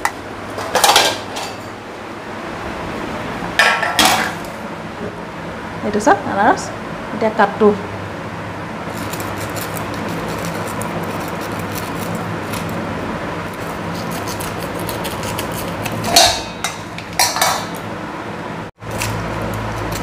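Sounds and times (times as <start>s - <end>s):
knife cutting fruit: 13.5s - 16.1s.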